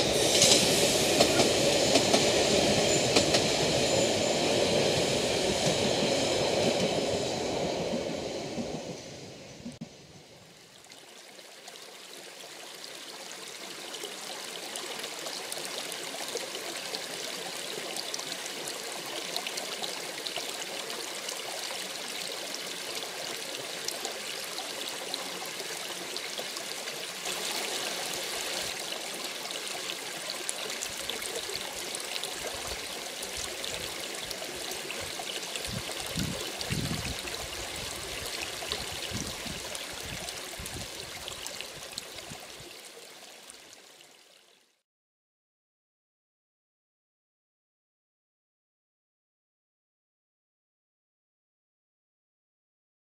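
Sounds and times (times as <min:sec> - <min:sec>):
brook trickling over rocks: 0:10.6 - 0:44.6.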